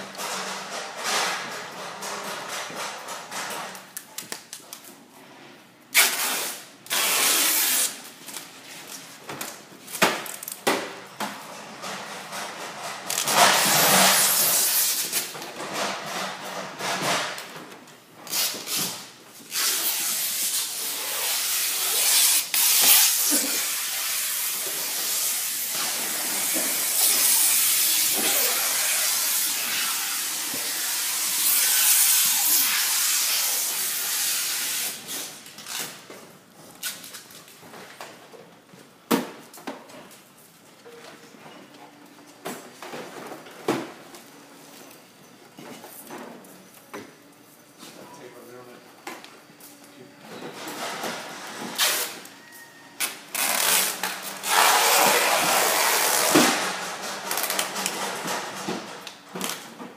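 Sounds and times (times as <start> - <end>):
stretch film hissing: 53.3 - 56.4.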